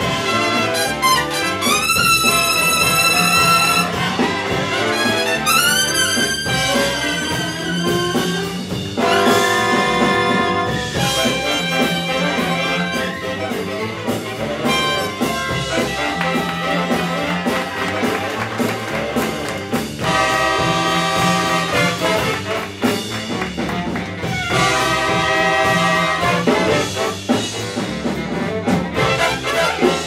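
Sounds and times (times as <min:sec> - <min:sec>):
horns holding loud chords: 0:00.0 - 0:27.6
big band playing swing jazz: 0:00.0 - 0:30.0.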